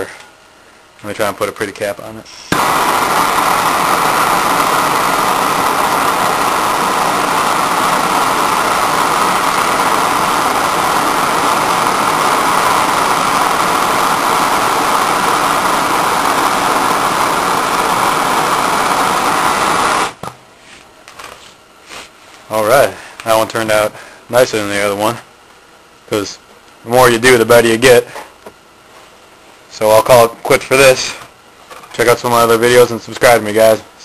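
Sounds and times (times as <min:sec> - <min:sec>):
gas torch flame hissing: 0:02.3 - 0:20.3.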